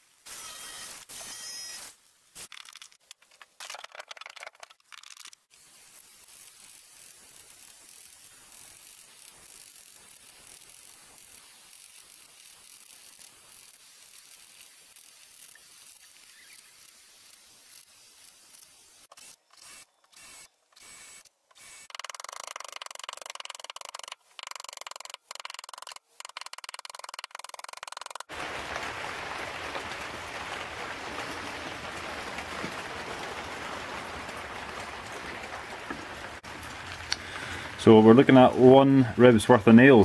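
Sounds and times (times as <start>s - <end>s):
rotary tool grinding wood: 5.9s - 28.3s.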